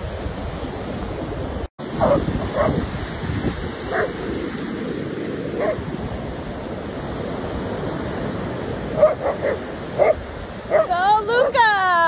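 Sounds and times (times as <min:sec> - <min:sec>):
ocean surf rushing: 0:00.0 - 0:12.0
dog barks: 0:01.9 - 0:02.8, 0:03.9 - 0:04.2, 0:05.6 - 0:05.8, 0:09.0 - 0:11.6.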